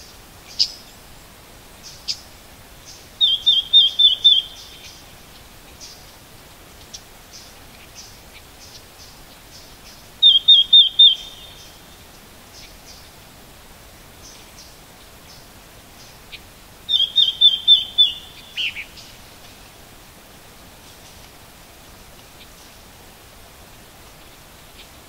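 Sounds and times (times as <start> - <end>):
bird calling: 2.9 - 5.1, 9.8 - 12.0, 16.0 - 19.2.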